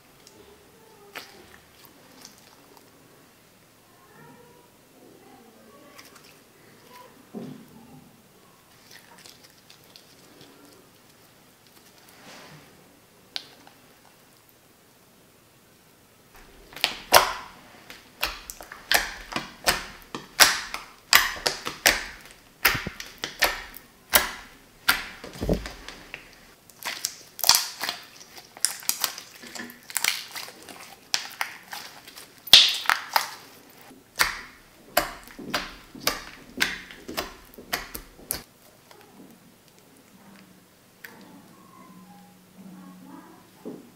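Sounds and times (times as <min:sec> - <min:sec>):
slime popping and squelching: 0:16.4 - 0:38.6.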